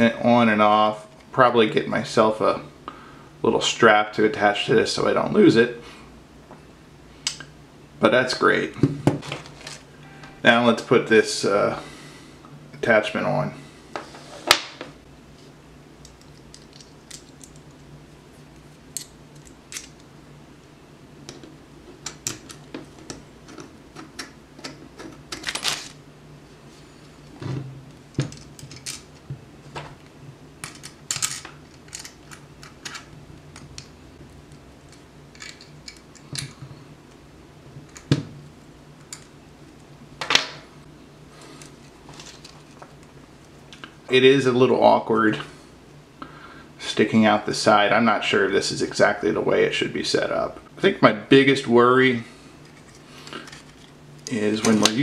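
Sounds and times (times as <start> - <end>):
faint low hum: 0.0 - 55.0
metal parts clicking and scraping: 18.9 - 20.0, 28.3 - 29.2, 30.6 - 33.8, 34.9 - 36.5, 52.6 - 54.0.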